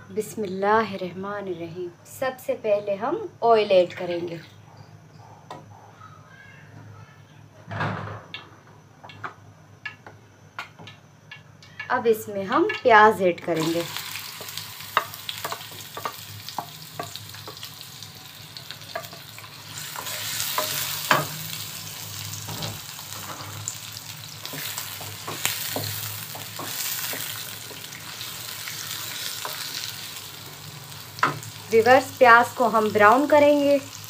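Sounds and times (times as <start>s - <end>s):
onions sizzling in oil: 12.1s - 34.0s.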